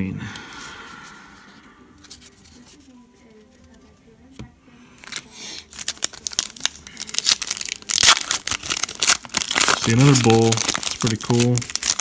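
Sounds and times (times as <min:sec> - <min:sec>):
foil wrapper tearing and crinkling: 0:05.0 - 0:12.0.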